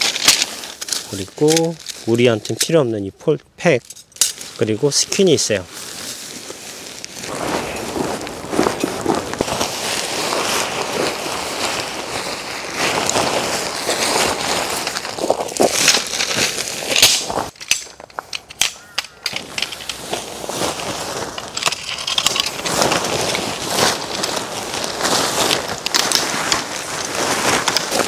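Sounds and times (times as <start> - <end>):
tent fabric rustling: 0.0 - 2.4, 4.3 - 17.6, 19.3 - 28.0
clicks and knocks from tent parts: 0.0 - 5.2, 12.8 - 28.0.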